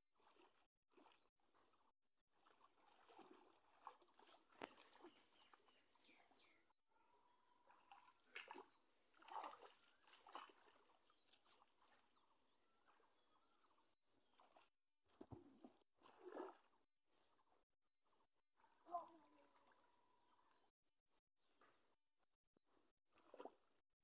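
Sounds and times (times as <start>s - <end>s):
hands splashing in shallow water: 2.4s - 5.7s, 7.6s - 12.2s, 14.2s - 16.8s, 23.1s - 23.7s.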